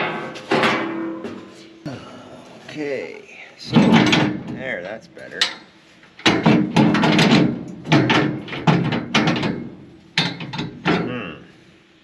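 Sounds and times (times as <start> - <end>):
metal clanks and scrapes: 0.0 - 1.8.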